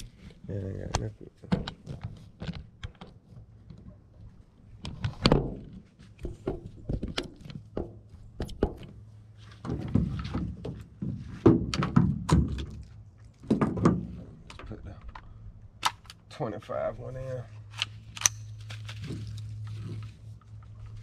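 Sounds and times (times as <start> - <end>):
gear handling clicks and knocks: 0.0 - 16.4.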